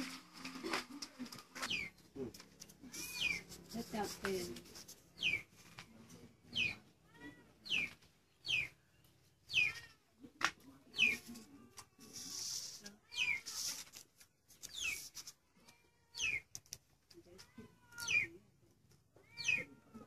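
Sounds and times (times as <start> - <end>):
kitten meowing: 2.9 - 3.4, 19.2 - 20.0.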